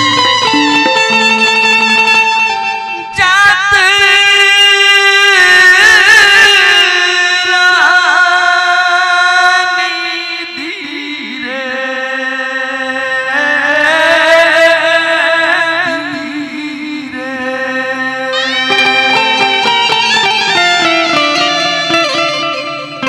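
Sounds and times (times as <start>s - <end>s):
harmonium chords: 0.0s - 7.2s, 15.8s - 23.0s
man singing devotional song: 1.0s - 23.0s.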